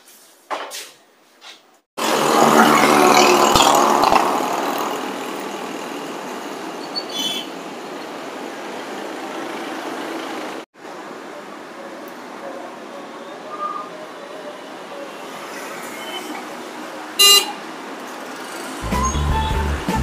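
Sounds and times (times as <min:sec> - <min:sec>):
vehicle engine close by: 0:02.0 - 0:06.8
traffic rumble: 0:02.0 - 0:20.0.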